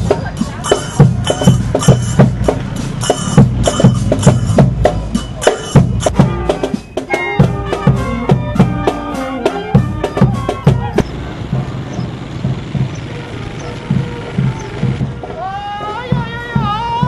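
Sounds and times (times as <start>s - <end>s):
marching drums: 0.0s - 17.0s
brass melody: 0.7s - 11.8s.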